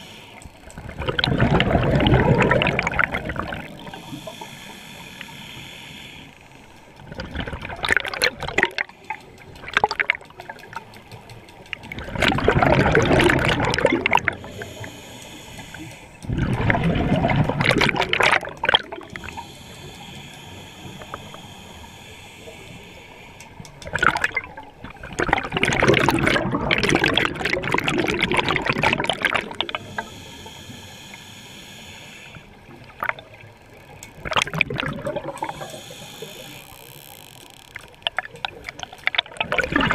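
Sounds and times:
regulator hiss: 0:00.0 - 0:00.6, 0:03.4 - 0:07.0, 0:14.4 - 0:16.2, 0:19.1 - 0:23.8, 0:29.7 - 0:32.6, 0:35.4 - 0:37.5
exhaled bubbles rushing: 0:00.8 - 0:04.1, 0:07.1 - 0:08.9, 0:11.9 - 0:14.6, 0:16.3 - 0:19.3, 0:23.8 - 0:30.1, 0:34.2 - 0:35.7, 0:38.0 - 0:39.9.

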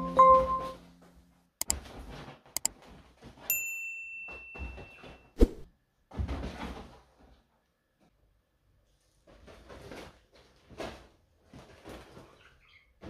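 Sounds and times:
chime notes: 0:00.0 - 0:00.8
bell-like ding: 0:03.5 - 0:05.2.

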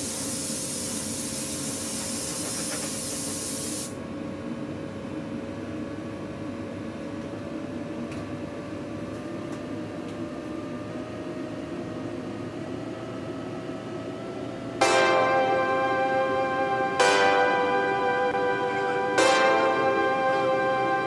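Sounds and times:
water spray hissing: 0:00.0 - 0:03.9
machinery drone: 0:10.7 - 0:21.0.

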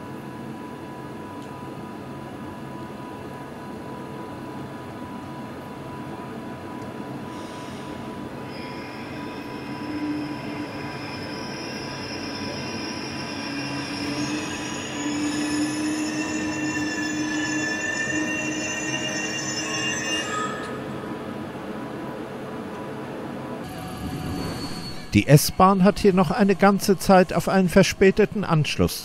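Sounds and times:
train wheels squealing: 0:07.3 - 0:21.1, 0:23.7 - 0:25.6.

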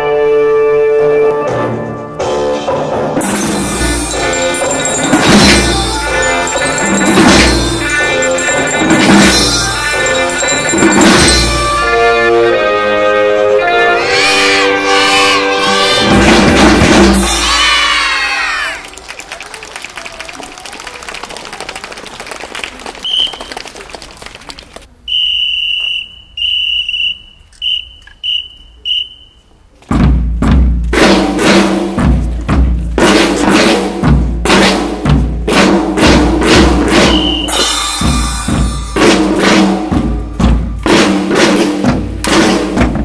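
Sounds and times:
crowd noise: 0:01.1 - 0:30.0
music with loud drum beat: 0:02.7 - 0:11.8, 0:16.0 - 0:17.8, 0:29.9 - 0:43.0
whistle blasts: 0:23.0 - 0:23.6, 0:25.0 - 0:29.6, 0:37.0 - 0:37.9.

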